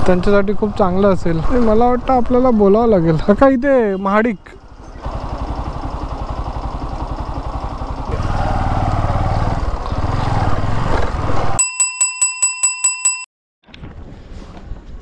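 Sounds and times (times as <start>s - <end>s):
motorcycle engine: 4.5s - 11.6s.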